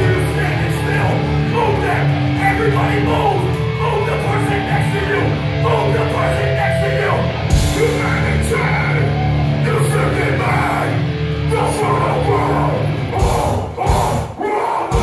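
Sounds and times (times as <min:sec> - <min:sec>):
distorted electric guitars and bass: 0:00.0 - 0:15.0
vocalist shouting: 0:00.6 - 0:15.0
pounding drums and cymbal crashes: 0:13.2 - 0:14.3.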